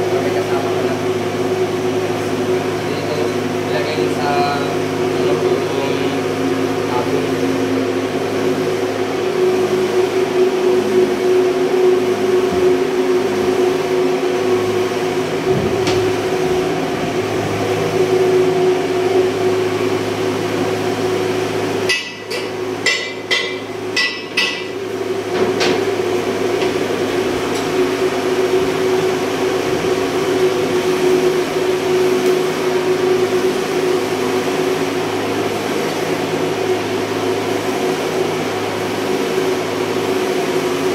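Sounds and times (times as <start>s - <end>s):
engine-room machinery drone: 0.0s - 40.9s
fixed humming tone: 0.0s - 40.9s
sharp metallic knocks: 21.9s - 24.8s.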